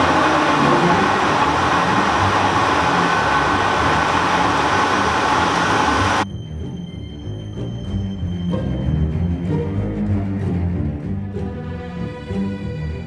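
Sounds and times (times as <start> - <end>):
paper machine hiss and rumble: 0.0 - 6.2.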